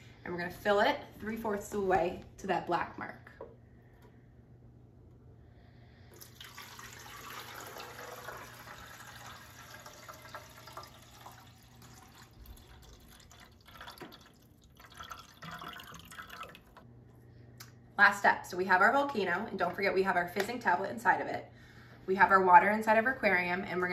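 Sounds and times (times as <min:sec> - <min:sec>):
water pouring and splashing: 0:06.1 - 0:16.8.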